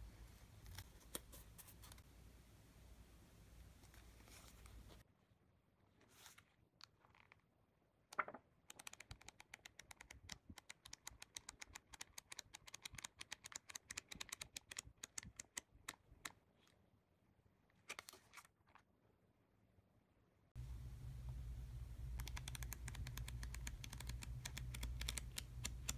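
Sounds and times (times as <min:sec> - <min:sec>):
flipbook pages flicking: 0:22.2 - 0:25.9.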